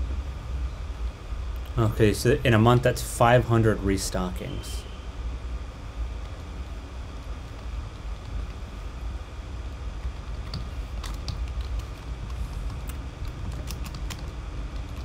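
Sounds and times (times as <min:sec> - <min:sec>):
low room hum: 0:00.0 - 0:15.0
computer keys clicking: 0:10.0 - 0:15.0.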